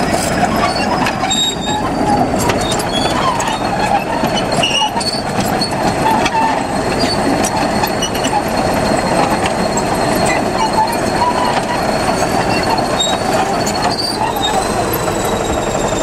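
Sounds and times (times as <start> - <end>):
diesel engine running: 0.0 - 16.0
steel tracks clattering and squeaking: 0.0 - 16.0.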